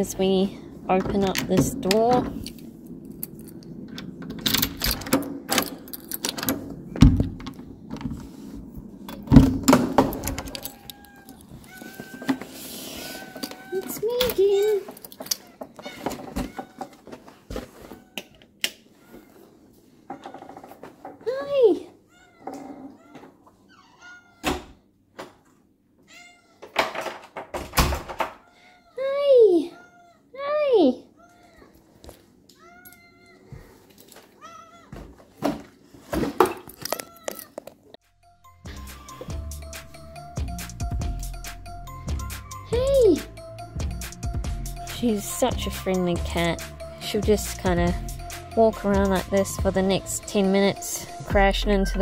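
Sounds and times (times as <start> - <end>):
keys rattling: 2.4 - 6.6, 10.2 - 11.9, 13.2 - 15.6
door unlocking clicks: 3.2 - 6.6
cat meowing: 10.4 - 17.0, 17.8 - 18.4, 22.1 - 24.7, 26.0 - 26.7, 28.4 - 30.4, 31.2 - 31.8, 34.4 - 35.0.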